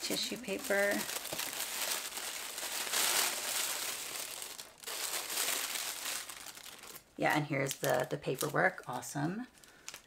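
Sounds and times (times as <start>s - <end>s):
tissue paper rustling: 0.0s - 7.0s.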